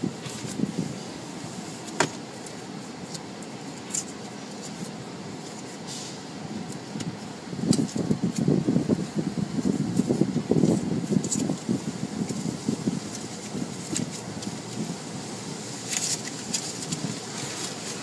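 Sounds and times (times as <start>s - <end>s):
wash brushes rumbling: 0.0s - 18.0s
wash water hissing over car: 0.0s - 18.0s.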